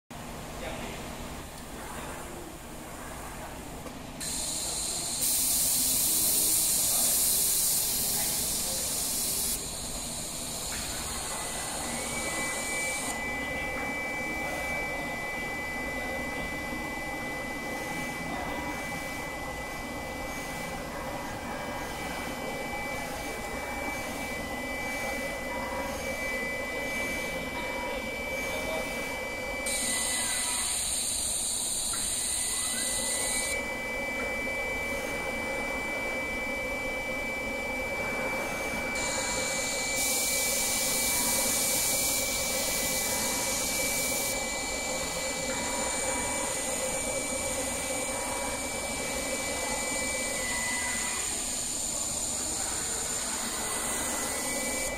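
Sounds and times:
machine whir with high whine: 0:00.2 - 0:54.9
high air hiss: 0:04.2 - 0:11.9.

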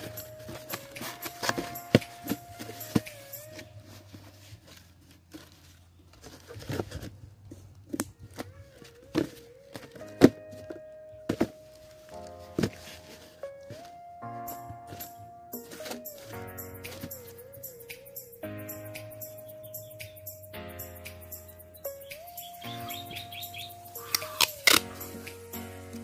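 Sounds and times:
cardboard scraping and rustling: 0:00.0 - 0:17.4.

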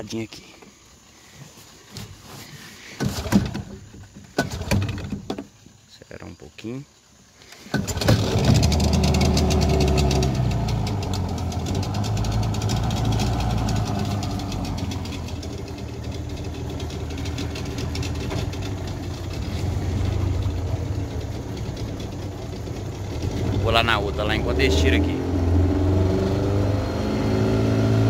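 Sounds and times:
outboard motor running: 0:07.8 - 0:28.0.

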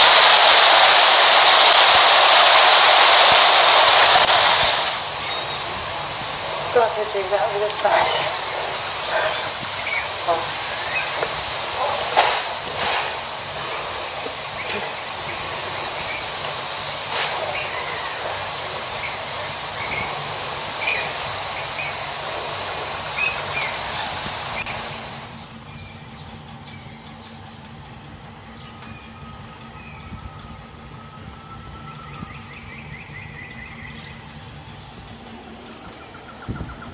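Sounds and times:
steady rushing noise: 0:00.0 - 0:25.5
high chirping bird calls: 0:04.3 - 0:25.4.

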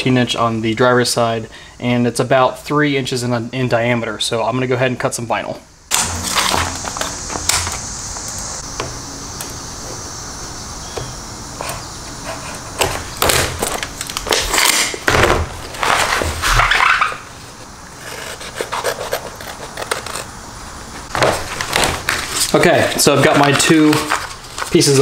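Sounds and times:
vinyl film crinkling: 0:15.6 - 0:25.0
scissors cutting vinyl: 0:18.0 - 0:20.3.

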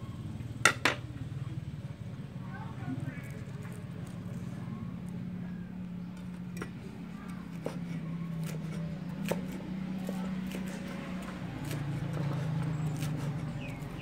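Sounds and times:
cleaver chopping on wooden board: 0:07.5 - 0:14.0.

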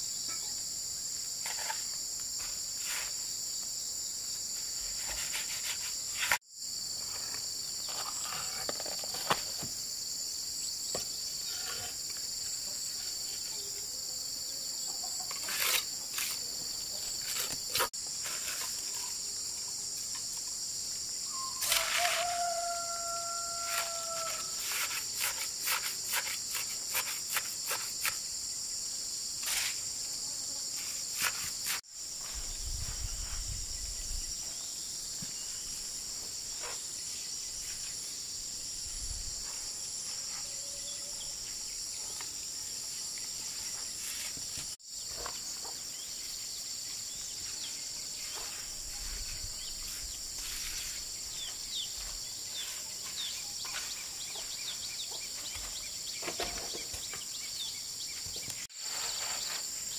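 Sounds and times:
insect chorus: 0:00.0 - 0:59.9
bird chirps: 0:21.2 - 0:21.6.

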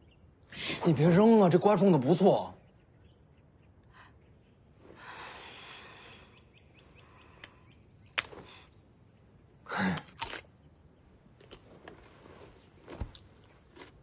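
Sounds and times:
cucumber cracking and snapping: 0:09.8 - 0:10.6.

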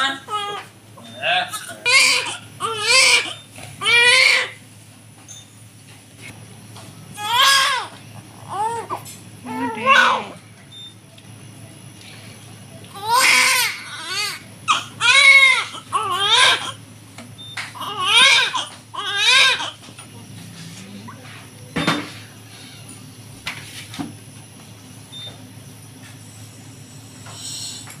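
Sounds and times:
newborn baby crying: 0:00.0 - 0:00.7, 0:01.3 - 0:04.6, 0:07.2 - 0:10.4, 0:13.0 - 0:16.8, 0:17.8 - 0:19.8.

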